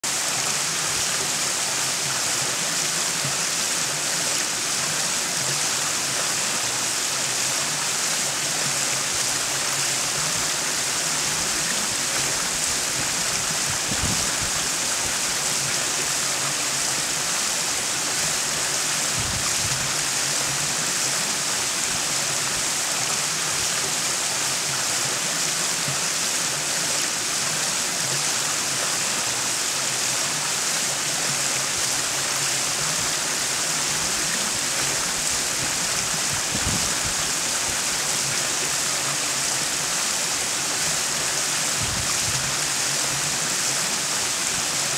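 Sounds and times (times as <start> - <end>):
waterfall splashing over stones: 0.0 - 44.9.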